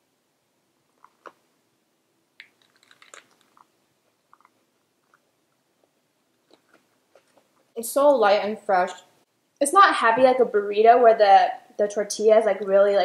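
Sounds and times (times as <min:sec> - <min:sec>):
people chewing crunchy food: 0:00.9 - 0:01.4, 0:02.4 - 0:07.4.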